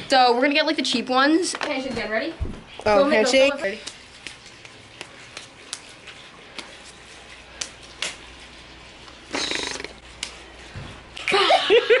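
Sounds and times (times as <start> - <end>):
hands rustling: 3.7 - 8.5
hands slapping and clapping: 3.8 - 6.8, 7.6 - 8.2, 10.2 - 10.4.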